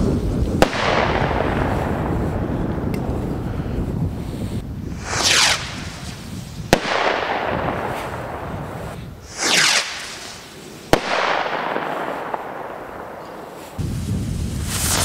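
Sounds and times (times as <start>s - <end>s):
rocket whoosh: 0.0s - 15.0s
firework bang with echo: 5.0s - 13.7s.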